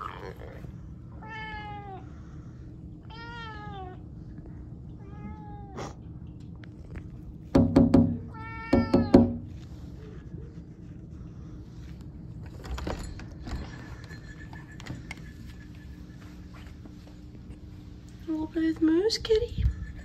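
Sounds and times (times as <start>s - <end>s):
cat meowing: 3.1s - 4.0s, 8.3s - 9.4s
loud sharp knocks: 7.6s - 9.5s.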